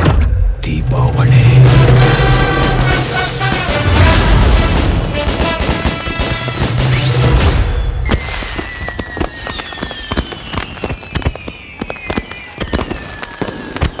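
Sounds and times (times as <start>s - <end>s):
fireworks popping: 2.6s - 14.0s
falling firework whistles: 3.9s - 4.8s, 6.8s - 14.0s.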